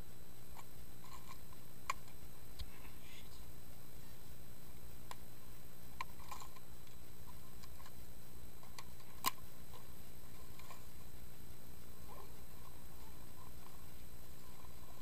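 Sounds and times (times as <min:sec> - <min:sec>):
steady background hiss: 0:00.0 - 0:15.0
faint clicks and ticks: 0:00.1 - 0:15.0.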